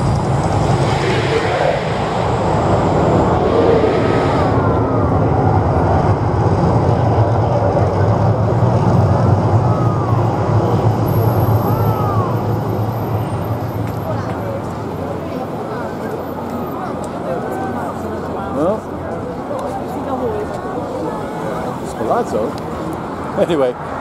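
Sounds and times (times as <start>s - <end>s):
low rumble: 0.0s - 14.5s
flame jets rushing: 0.0s - 14.9s.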